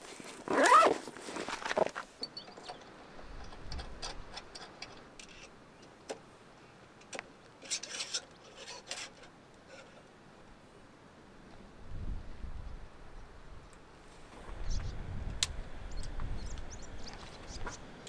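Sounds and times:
camping gear clicking and knocking: 0.3s - 6.2s.

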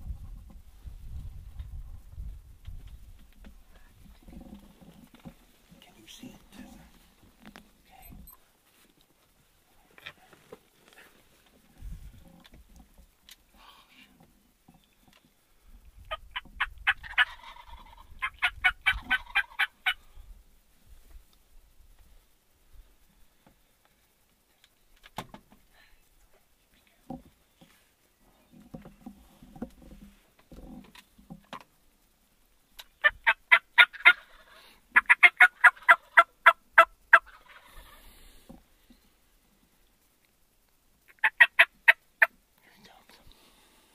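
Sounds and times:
wild turkey calling: 16.1s - 20.1s, 32.8s - 38.2s, 41.0s - 42.4s.

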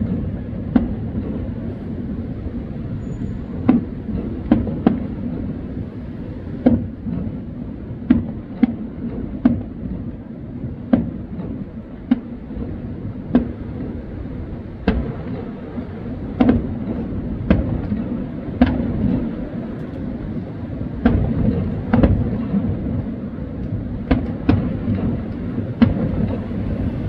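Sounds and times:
fireworks bangs: 0.0s - 27.0s
low rumble: 19.0s - 27.0s.

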